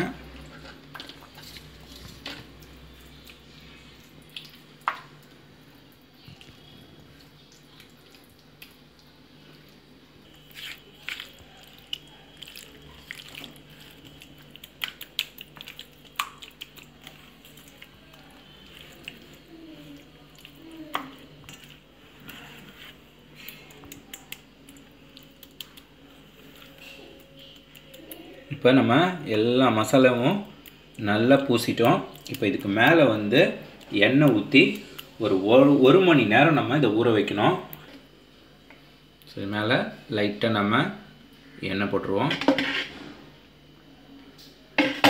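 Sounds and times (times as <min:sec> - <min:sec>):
hand squelching wet paste: 0:06.1 - 0:28.3.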